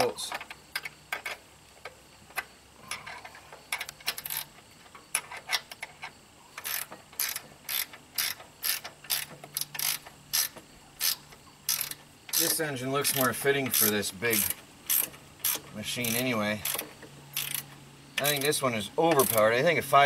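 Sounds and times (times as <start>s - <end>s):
ratchet wrench clicking: 2.9s - 4.5s, 6.6s - 19.8s.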